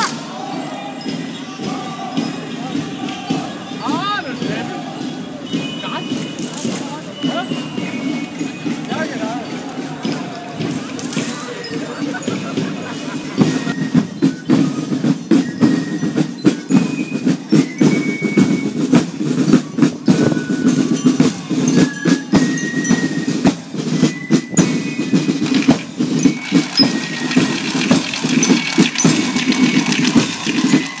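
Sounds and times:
dense crowd din: 0.0s - 31.0s
percussive clicks and knocks: 25.4s - 31.0s.

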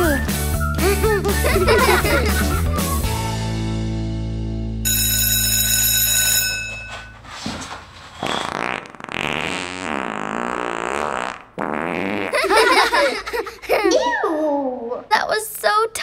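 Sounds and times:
cartoon fart sound: 8.2s - 12.8s.

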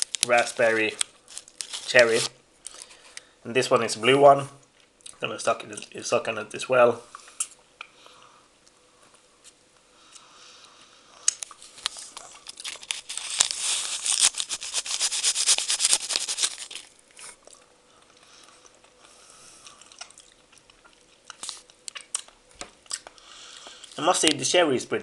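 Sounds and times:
crackling candy clicks: 0.0s - 3.3s, 11.3s - 17.0s.

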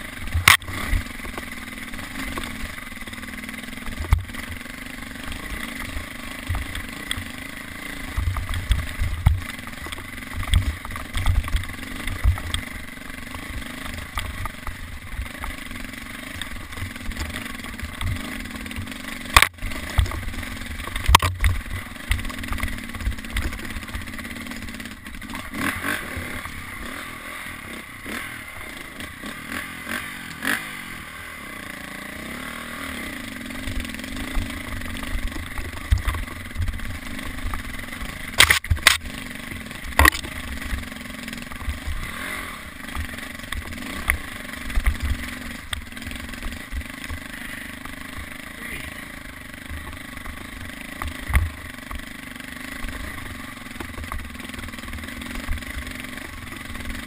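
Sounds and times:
dirt bike engine revving: 0.0s - 57.0s
sharp knocks from bumps: 38.4s - 39.1s, 39.9s - 40.4s.

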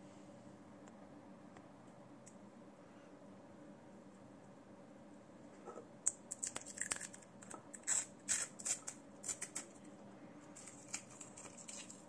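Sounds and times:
plastic wrapping crinkling: 10.6s - 12.0s.

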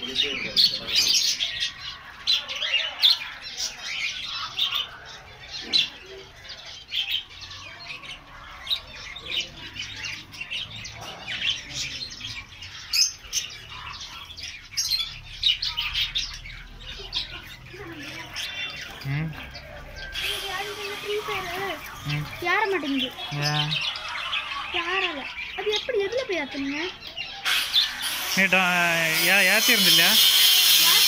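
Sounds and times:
budgerigars chirping and squawking: 0.0s - 31.0s.

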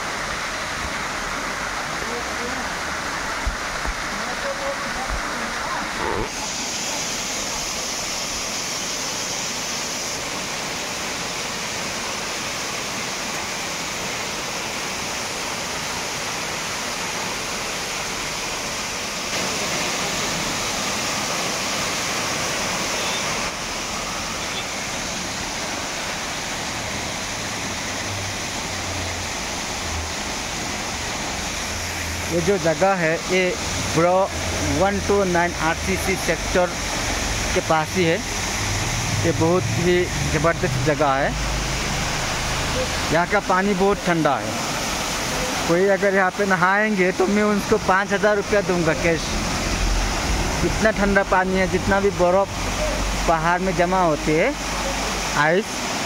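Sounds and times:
waterfall splashing over rocks: 0.0s - 56.0s.

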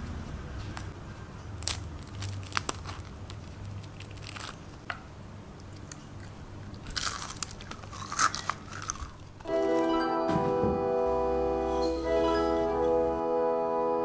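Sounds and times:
crisp crepes cracking and crunching: 1.5s - 5.0s, 6.7s - 9.5s.

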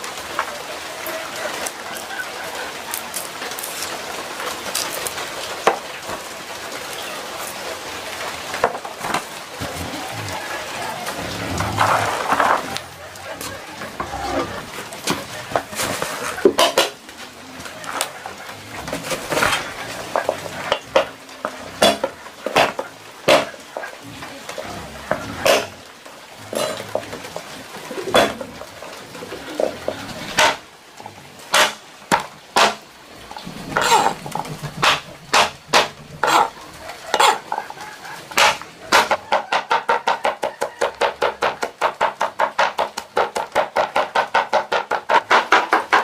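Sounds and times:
utensils and pots clinking: 10.9s - 25.8s.

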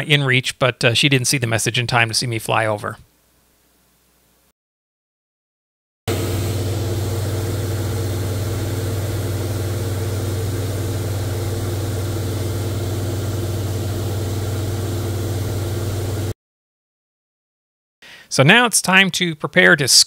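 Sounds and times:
airplane engine and propeller drone: 6.1s - 16.4s.

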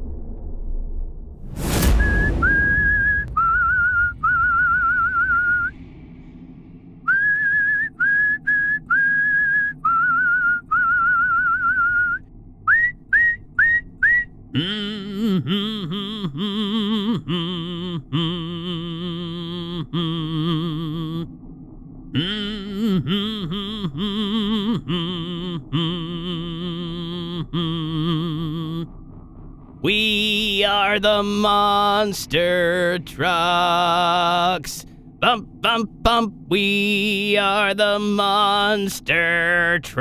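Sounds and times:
upward-swooping whistles: 1.7s - 5.8s, 7.0s - 14.4s
whistled tune: 1.8s - 5.8s, 7.0s - 14.4s
low wavering held tone: 1.9s - 38.8s.

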